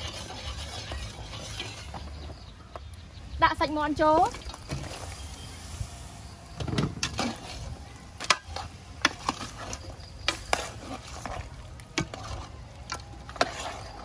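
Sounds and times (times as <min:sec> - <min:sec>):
metal spatula scraping a pot: 0:00.0 - 0:02.5, 0:06.9 - 0:14.0
low sizzle: 0:00.0 - 0:14.0.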